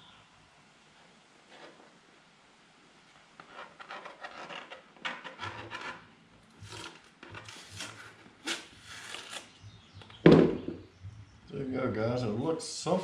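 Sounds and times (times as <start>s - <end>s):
masking tape peeling: 6.6s - 9.6s.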